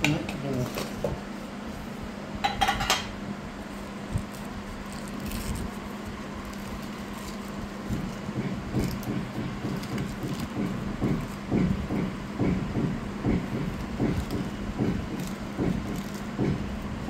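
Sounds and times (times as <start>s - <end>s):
steady low hum: 0.0s - 17.0s
plastic sheet crinkling: 3.6s - 11.5s.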